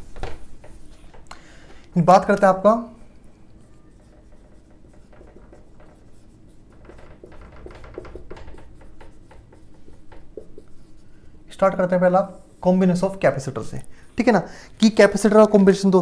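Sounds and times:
marker writing on whiteboard: 0.2 - 1.2, 2.1 - 13.2.

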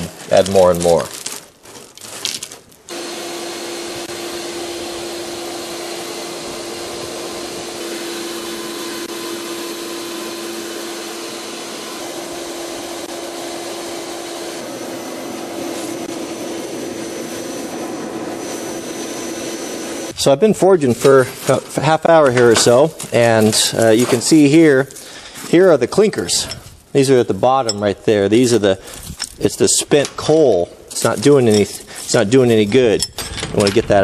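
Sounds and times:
vacuum cleaner blower humming: 2.9 - 20.2.

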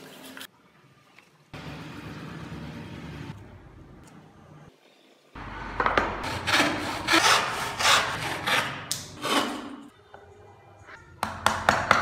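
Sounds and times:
rasping wood strokes: 6.2 - 9.5.

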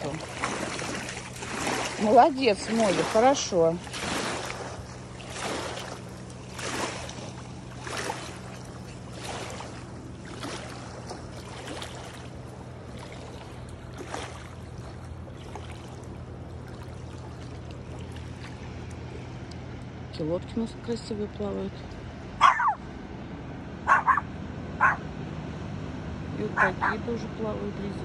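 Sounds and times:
small waves lapping on rocks: 0.0 - 19.2
steady low hum: 0.0 - 28.0.

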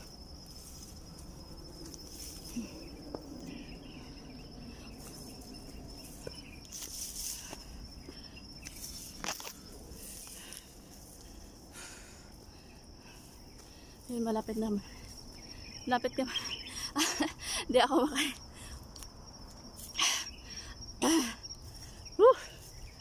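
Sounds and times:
footsteps through tall grass: 0.0 - 11.5
high-pitched insect call: 0.0 - 23.0.

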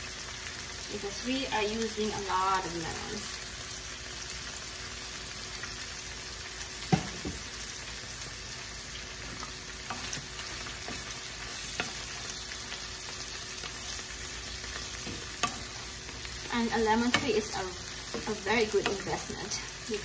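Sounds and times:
shrimp sizzling in a frying pan: 0.0 - 20.0
wooden spatula stirring in pan: 9.0 - 20.0.

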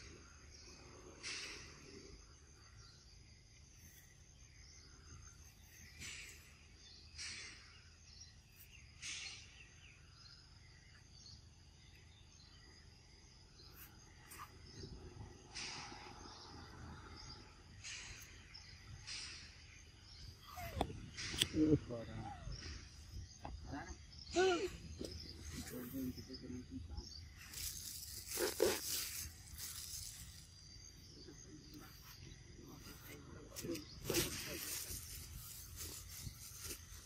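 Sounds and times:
high-pitched insect drone: 12.4 - 37.0.

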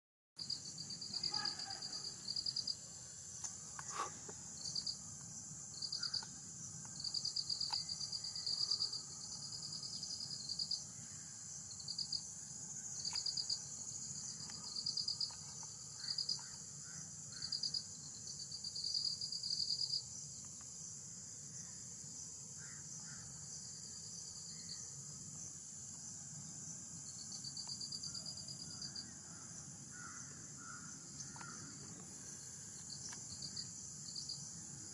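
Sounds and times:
faint chirps: 0.4 - 2.8
insect pulsed trills: 0.4 - 34.9
insects buzzing: 0.4 - 34.9.

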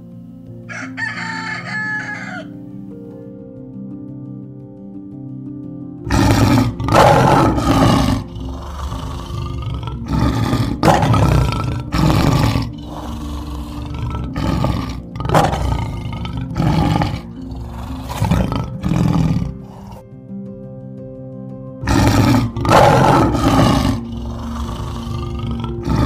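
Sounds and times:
background music: 0.0 - 26.0
lion roaring: 6.1 - 20.0, 21.8 - 26.0.

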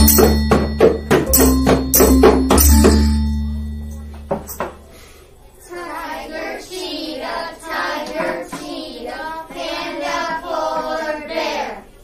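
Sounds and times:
children chanting in unison: 5.6 - 12.0.

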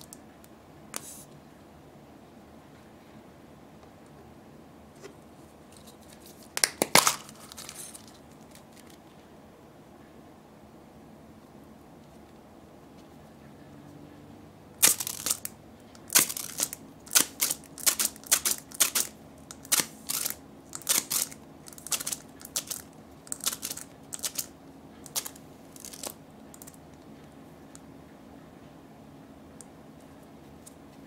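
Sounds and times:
toy clicking and crackling: 14.8 - 26.8.

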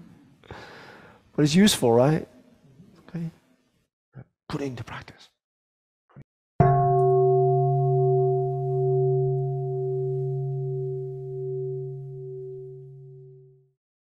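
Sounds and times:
meditation bowl bell ringing: 6.6 - 13.7.

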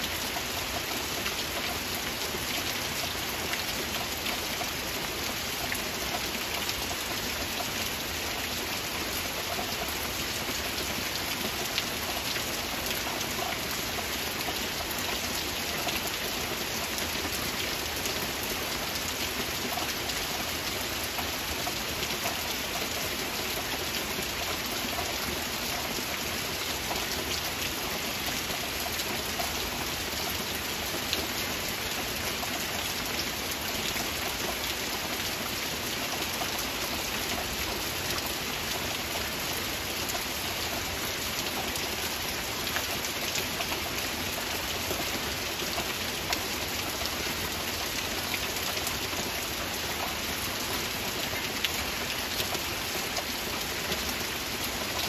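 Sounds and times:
heavy rain falling: 0.0 - 55.0.

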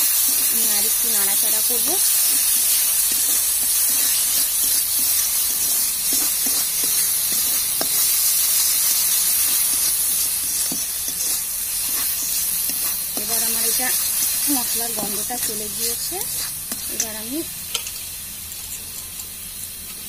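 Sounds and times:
spice paste sizzling in oil: 0.0 - 20.0
spatula scraping a pan: 2.0 - 17.1.

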